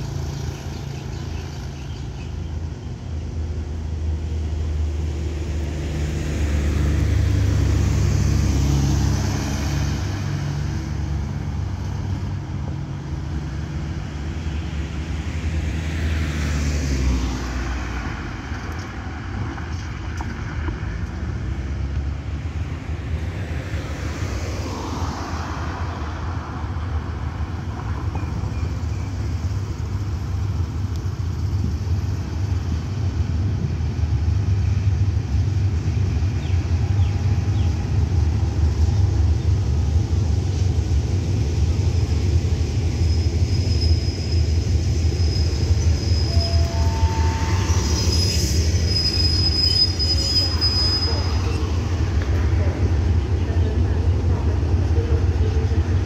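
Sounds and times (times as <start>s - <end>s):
cars passing: 0.0s - 42.9s
diesel locomotive rumble: 0.0s - 56.0s.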